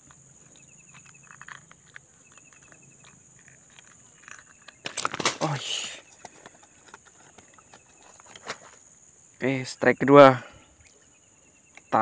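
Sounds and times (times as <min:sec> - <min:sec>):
rapid chirping ticks: 0:00.0 - 0:05.0
faint rustles and clicks: 0:00.0 - 0:09.0
insects buzzing: 0:00.0 - 0:12.0.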